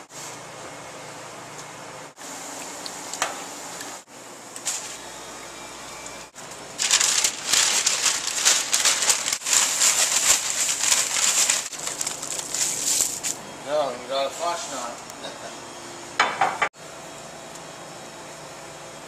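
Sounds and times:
paper bag crinkling rustle: 4.6 - 5.0, 6.4 - 13.4.

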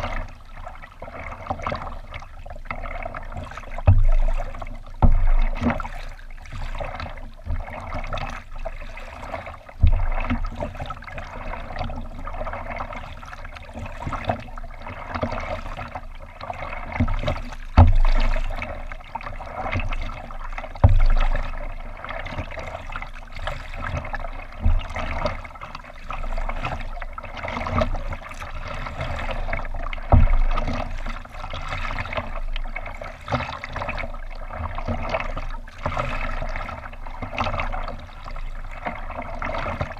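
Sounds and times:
water lapping along hull: 0.0 - 39.9
dull low thumps: 3.8 - 6.0, 9.7 - 10.6, 17.0 - 18.6, 20.6 - 21.7, 30.0 - 30.7.

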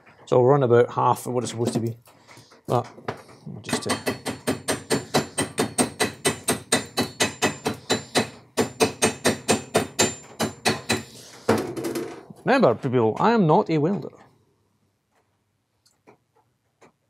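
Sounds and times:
chipping hammer striking weld: 3.7 - 11.2.

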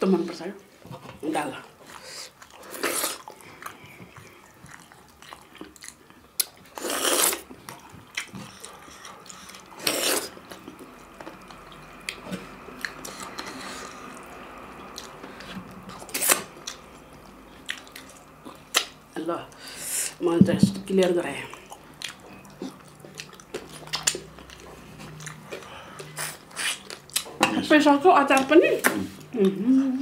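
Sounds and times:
chewing and lip smacking: 1.8 - 19.0, 21.5 - 27.4.

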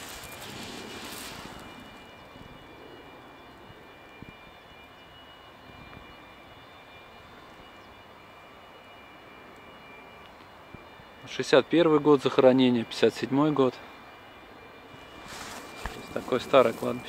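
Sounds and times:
jet engine rush: 0.0 - 3.9, 15.0 - 17.0
distant jet engine rumble: 0.0 - 17.0.

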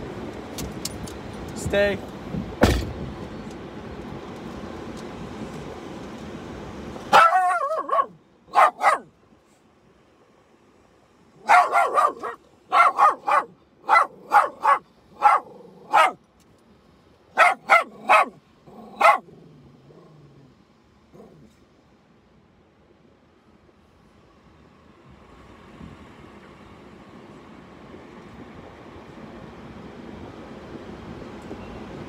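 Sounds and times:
small dog barking: 7.1 - 9.1, 11.4 - 16.2, 17.4 - 20.1.

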